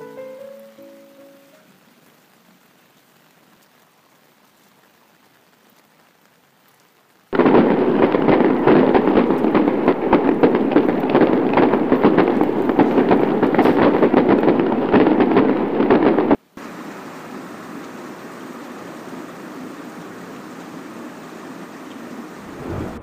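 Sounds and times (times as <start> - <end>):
heavy rain: 0.0 - 23.0.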